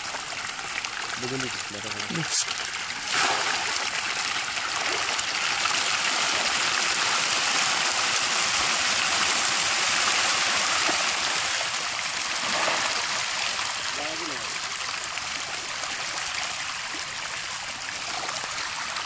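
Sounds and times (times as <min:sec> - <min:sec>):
fish splashing at water surface: 0:00.3 - 0:13.9.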